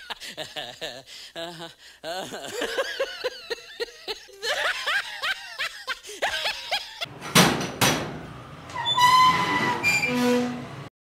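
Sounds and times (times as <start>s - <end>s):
steel gate banging: 7.1s - 10.9s.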